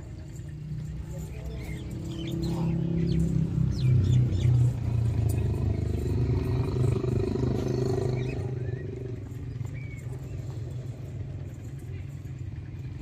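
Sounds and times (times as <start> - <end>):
bull bellowing: 1.4 - 3.6, 4.6 - 12.3.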